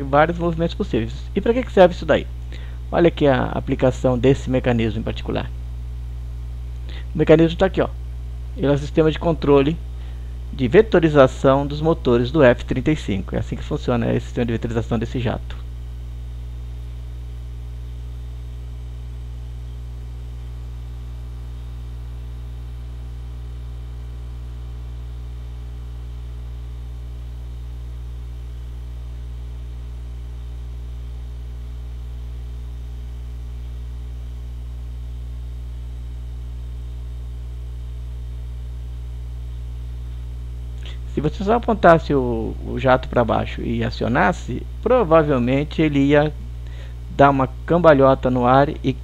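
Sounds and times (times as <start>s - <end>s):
electrical mains hum: 0.0s - 49.0s.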